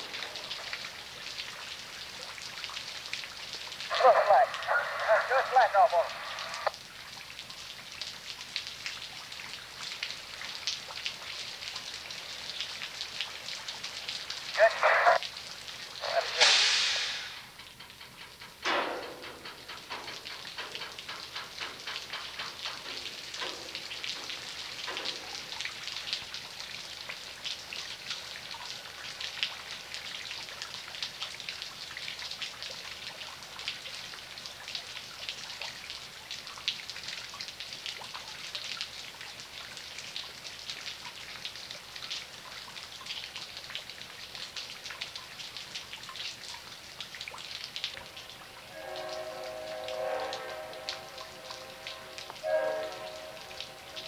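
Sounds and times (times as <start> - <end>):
rain falling: 0.0 - 54.0
raindrops ticking close by: 0.0 - 54.0.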